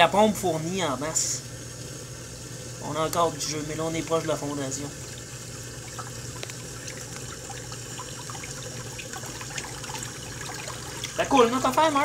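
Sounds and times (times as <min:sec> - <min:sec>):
sump pump humming: 0:00.0 - 0:12.0
water churning and splashing: 0:03.6 - 0:11.8.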